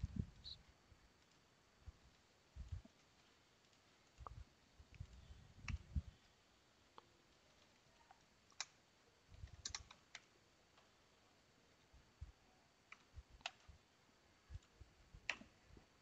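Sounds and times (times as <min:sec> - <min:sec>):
computer keyboard clicks: 0:09.4 - 0:10.2
mouse clicks: 0:09.5 - 0:10.0.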